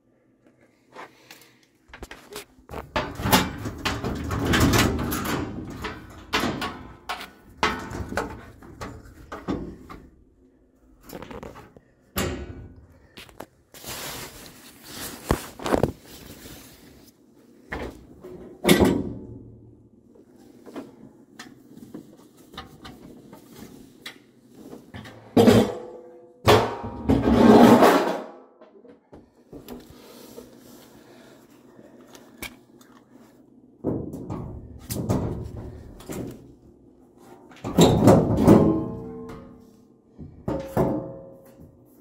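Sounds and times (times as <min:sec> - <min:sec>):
rustling and scraping: 0:11.0 - 0:11.9, 0:13.1 - 0:18.4.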